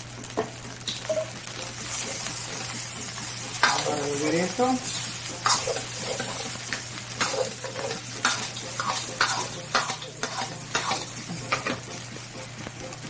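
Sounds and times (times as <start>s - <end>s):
rice sizzling: 0.0s - 13.0s
metal ladle scraping frying pan: 4.8s - 11.8s.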